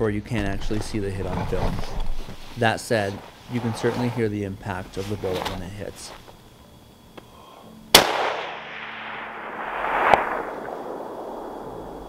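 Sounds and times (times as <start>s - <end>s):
distant bullet impact crack: 7.9s - 12.0s
rifle shot echoing: 7.9s - 12.0s.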